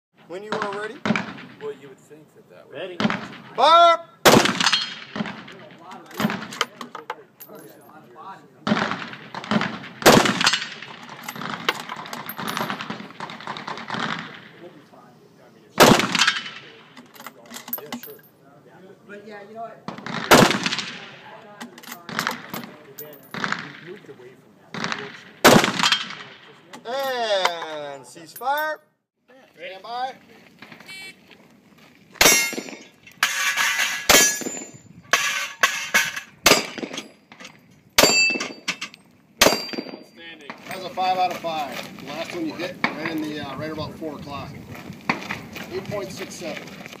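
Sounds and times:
loud gunshots: 0:04.2 - 0:05.7, 0:08.6 - 0:11.7, 0:12.4 - 0:14.8, 0:15.8 - 0:16.9, 0:19.9 - 0:21.4, 0:23.3 - 0:24.0, 0:24.7 - 0:26.5, 0:36.4 - 0:37.0, 0:39.4 - 0:40.0
steel targets clanging: 0:15.9 - 0:18.4, 0:32.2 - 0:41.2.

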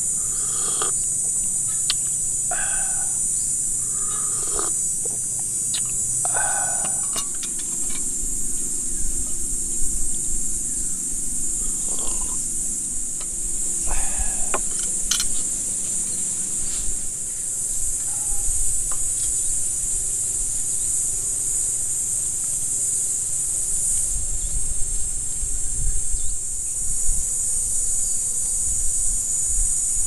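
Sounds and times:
insects chorus: 0:00.0 - 0:30.0
low uneven rumble: 0:02.5 - 0:17.1.

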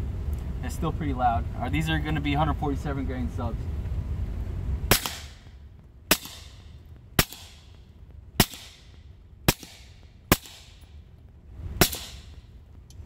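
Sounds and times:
suppressed pistol shots: 0:04.9 - 0:05.5, 0:06.1 - 0:07.8, 0:08.4 - 0:11.0, 0:11.8 - 0:12.5.

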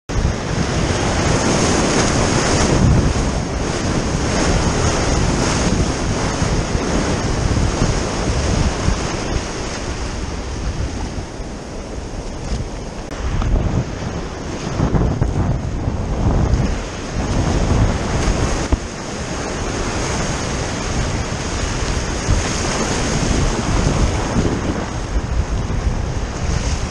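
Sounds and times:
wind buffeting microphone: 0:00.1 - 0:26.9
whitewater rushing and hissing: 0:00.2 - 0:26.9.

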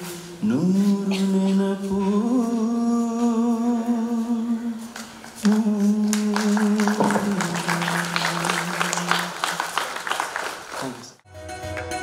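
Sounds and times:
man singing long notes: 0:00.0 - 0:09.8
audience applause: 0:05.4 - 0:11.2.

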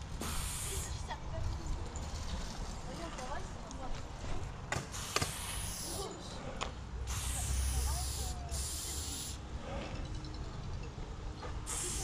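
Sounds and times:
spray paint can hissing: 0:00.2 - 0:01.0, 0:04.9 - 0:06.1, 0:07.1 - 0:09.4, 0:11.7 - 0:12.0.

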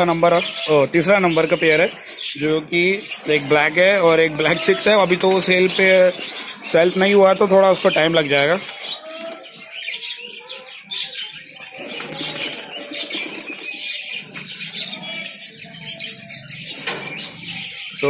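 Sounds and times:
pigeons flapping wings: 0:11.8 - 0:13.8.

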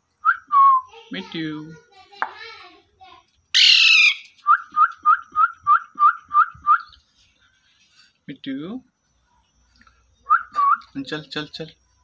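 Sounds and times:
parakeet short sharp calls: 0:03.6 - 0:04.2
parakeet harsh screech: 0:03.6 - 0:04.3.

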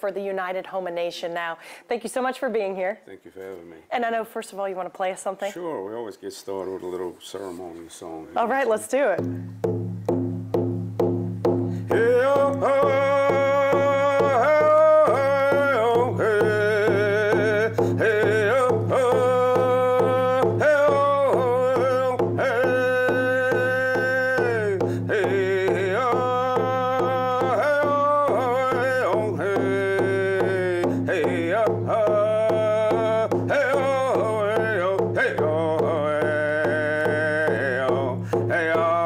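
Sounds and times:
hand drum beats: 0:08.4 - 0:39.0
man singing: 0:11.8 - 0:39.0.

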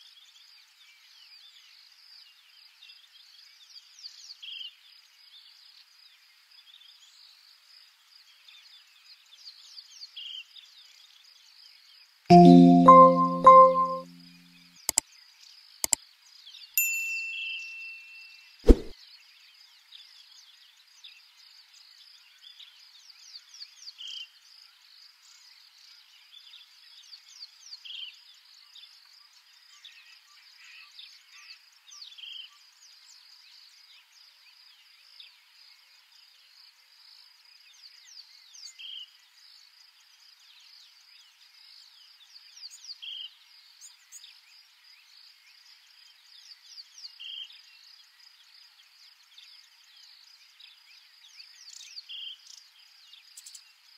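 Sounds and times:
thin chirps: 0:12.3 - 0:14.2.

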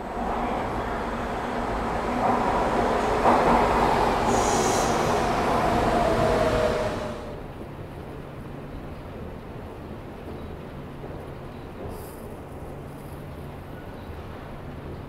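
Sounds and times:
subway train rumble: 0:00.0 - 0:15.0
train whine falling in pitch: 0:00.2 - 0:07.4.

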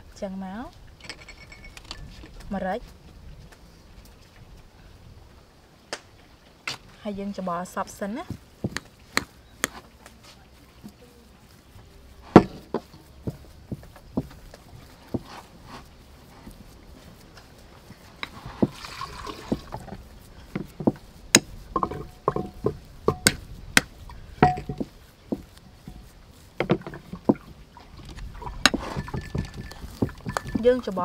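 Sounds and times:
potatoes mashing and scraping: 0:07.9 - 0:31.0.

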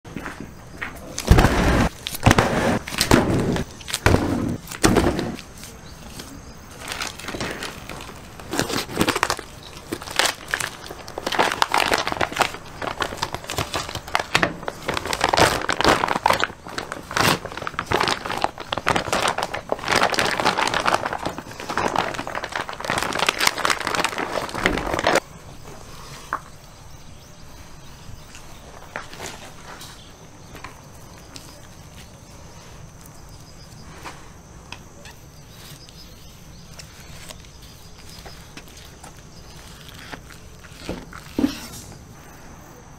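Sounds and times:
plastic packaging crinkling: 0:01.1 - 0:25.2, 0:35.5 - 0:41.7
heavy thumps: 0:01.2 - 0:05.5.

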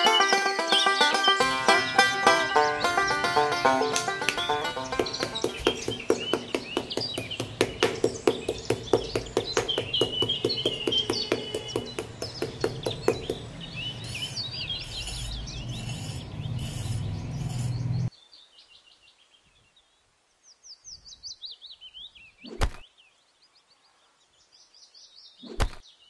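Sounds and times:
birds chirping in trills: 0:00.0 - 0:26.0
sharp knocks: 0:03.1 - 0:13.6
trowel scraping sand: 0:10.6 - 0:18.1.

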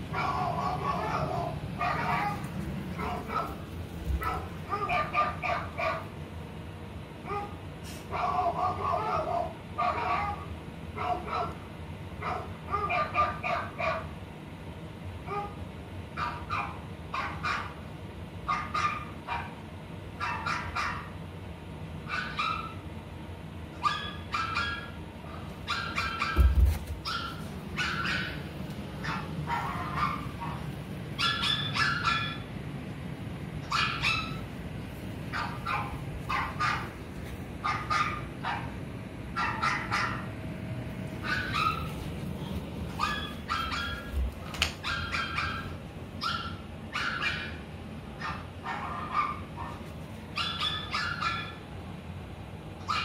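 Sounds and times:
dog barking: 0:00.1 - 0:06.2, 0:07.2 - 0:11.6, 0:12.2 - 0:14.1, 0:15.2 - 0:15.6, 0:16.2 - 0:17.8, 0:18.5 - 0:19.6, 0:20.2 - 0:21.2, 0:22.0 - 0:22.8, 0:23.8 - 0:32.5, 0:33.6 - 0:34.5, 0:35.3 - 0:37.0, 0:37.6 - 0:40.3, 0:41.2 - 0:42.1, 0:42.9 - 0:51.6, 0:52.8 - 0:53.0
loud thump: 0:26.4 - 0:26.9.

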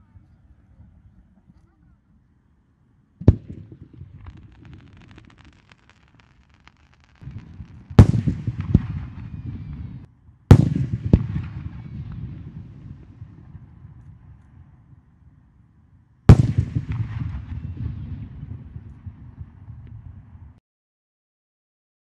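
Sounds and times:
firework shells bursting: 0:03.2 - 0:09.4
firework crackle: 0:03.2 - 0:13.4.

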